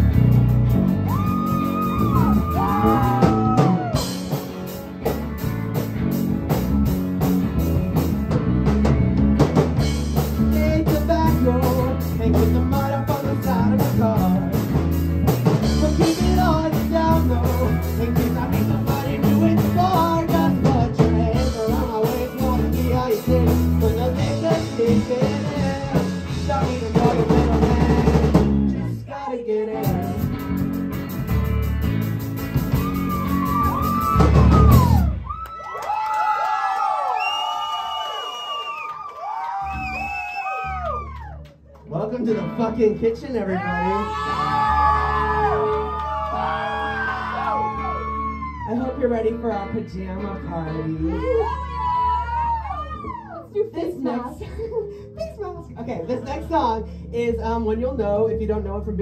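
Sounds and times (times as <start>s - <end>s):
drum kit: 0.0s - 28.8s, 29.8s - 35.4s
electric guitar: 0.0s - 35.4s, 43.7s - 55.2s
bass guitar: 0.0s - 35.7s, 39.4s - 59.0s
person singing: 10.3s - 14.7s, 15.6s - 30.4s.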